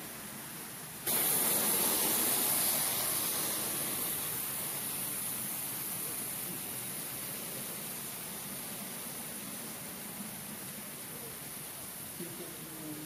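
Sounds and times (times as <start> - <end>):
model train hiss: 0.0 - 13.0.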